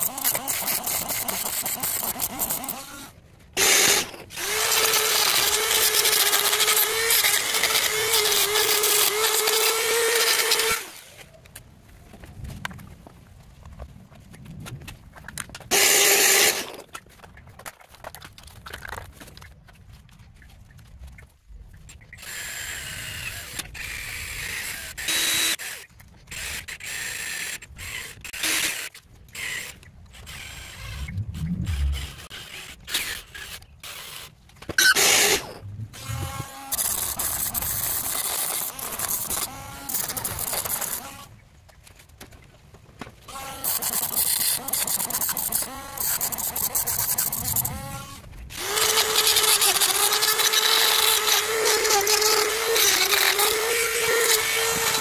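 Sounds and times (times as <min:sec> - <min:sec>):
power tool cutting metal: 0:00.0 - 0:11.1, 0:15.7 - 0:16.8, 0:31.7 - 0:41.3, 0:43.3 - 0:55.0.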